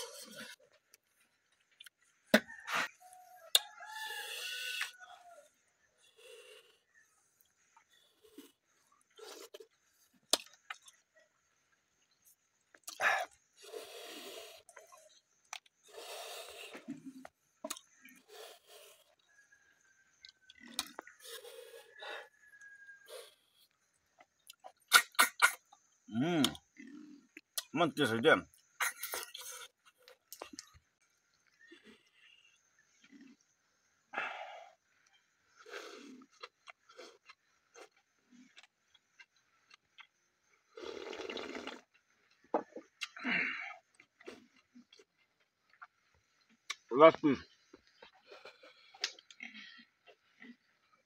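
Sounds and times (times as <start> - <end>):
person chewing: 0.0 - 2.1, 12.7 - 13.8, 14.6 - 19.2, 20.2 - 21.6, 35.6 - 40.2, 42.8 - 46.9, 47.8 - 50.7
person slurping snails: 8.2 - 10.9, 12.8 - 19.2, 20.5 - 22.2, 24.5 - 27.7, 28.8 - 30.7, 39.9 - 42.1
loud slurping: 24.9 - 25.7, 40.7 - 41.9.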